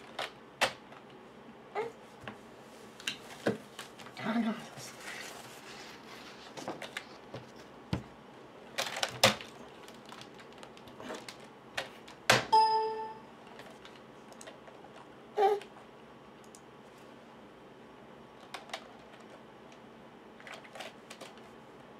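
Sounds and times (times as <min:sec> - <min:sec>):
short steady tone: 0:12.5 - 0:13.3.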